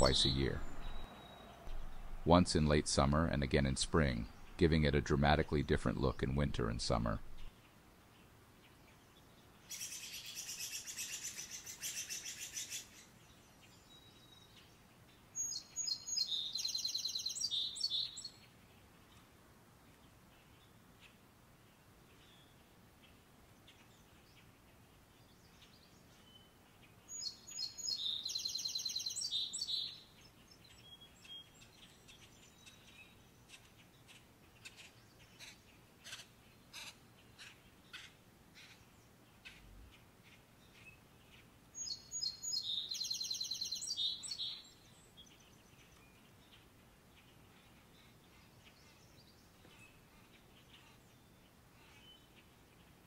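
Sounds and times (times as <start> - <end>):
short bird chirps: 0.0 - 2.2
songbird singing: 0.0 - 53.0.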